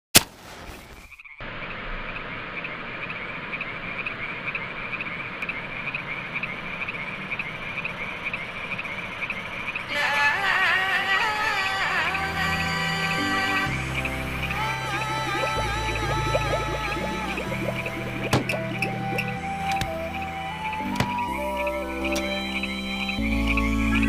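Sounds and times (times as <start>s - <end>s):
frogs croaking in chorus: 1.1s - 10.0s, 13.6s - 24.0s
music: 11.0s - 24.0s.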